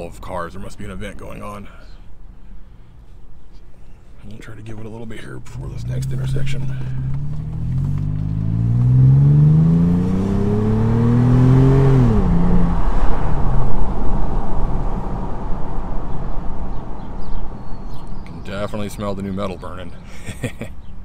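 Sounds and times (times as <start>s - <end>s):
wind and road noise: 0.0s - 21.0s
car engine accelerating: 5.5s - 17.6s.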